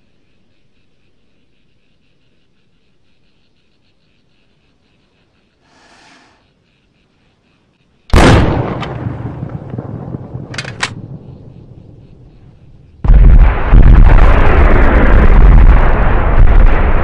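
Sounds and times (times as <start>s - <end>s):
faint fast chirping: 0.0s - 8.1s
loud blast with rumble: 8.1s - 11.3s, 13.0s - 17.0s.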